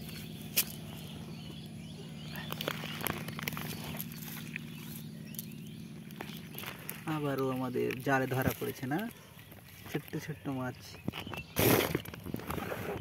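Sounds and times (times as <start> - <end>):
steady low hum: 0.0 - 13.0
footsteps on grass: 2.3 - 10.2
wet net rustling and clicking: 2.4 - 10.2.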